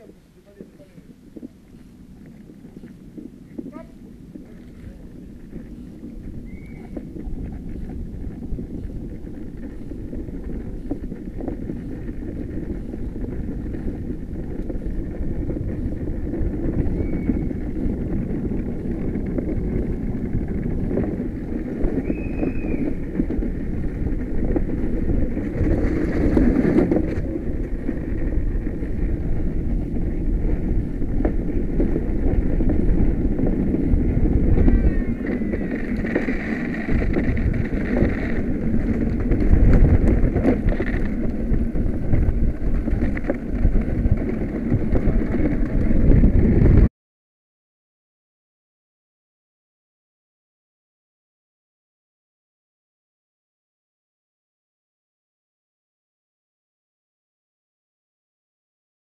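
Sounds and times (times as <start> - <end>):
wheels rumbling on asphalt: 0.0 - 46.9
wind buffeting microphone: 0.0 - 46.9.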